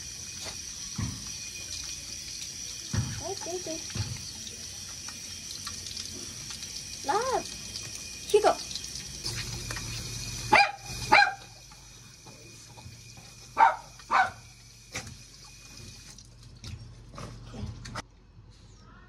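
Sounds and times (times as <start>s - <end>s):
water running from a tap: 0.0s - 17.1s
dog barking: 10.5s - 11.6s, 13.6s - 14.5s.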